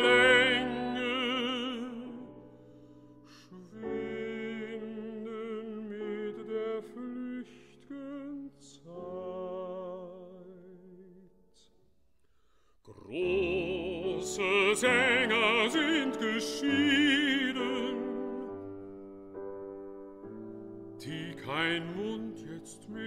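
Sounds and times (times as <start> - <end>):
baritone singing: 0.0 - 2.5, 3.3 - 11.3, 12.9 - 18.7, 21.0 - 23.0
piano chords: 0.0 - 11.0, 13.0 - 23.0.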